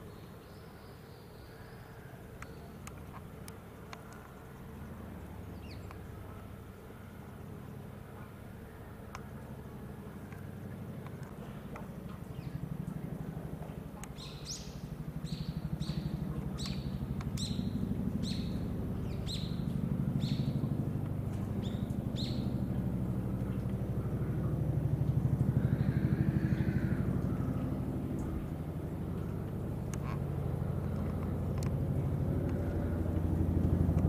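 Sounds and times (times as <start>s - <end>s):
vehicle engine rumble: 2.0s - 34.0s
bird chirping: 14.2s - 19.6s, 20.2s - 20.6s, 21.6s - 22.5s.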